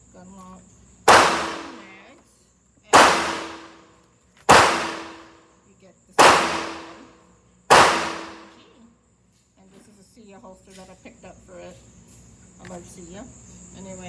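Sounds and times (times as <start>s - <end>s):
gunshots echoing indoors: 1.1s - 2.0s, 3.0s - 3.9s, 4.5s - 5.4s, 6.2s - 8.6s.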